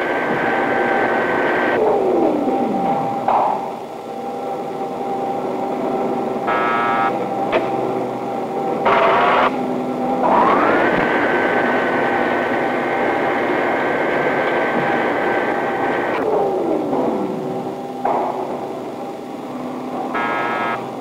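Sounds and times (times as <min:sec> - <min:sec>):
drilling machine hum and whine: 0:00.0 - 0:21.0
short buzzes: 0:20.1 - 0:21.0.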